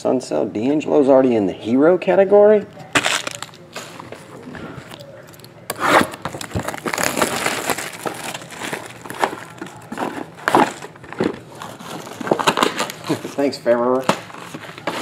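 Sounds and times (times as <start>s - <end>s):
plastic shrink wrap tearing: 3.0s - 4.0s, 5.7s - 15.0s.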